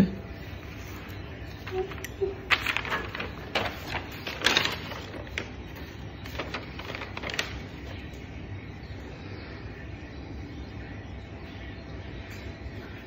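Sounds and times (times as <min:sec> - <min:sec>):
paper rustling and crinkling: 0:00.7 - 0:08.2.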